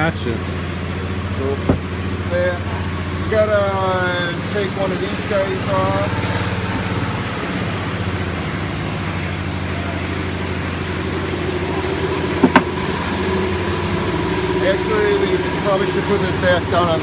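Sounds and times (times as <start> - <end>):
metal parts clinking: 12.4 - 12.8.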